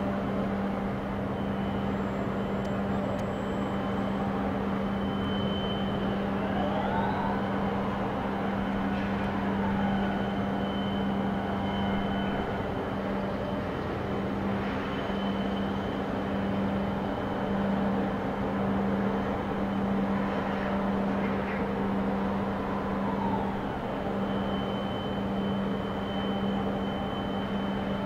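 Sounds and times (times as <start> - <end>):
machinery low hum: 0.0 - 28.0
thin high whistle: 4.8 - 8.0, 9.4 - 12.6, 22.7 - 28.0.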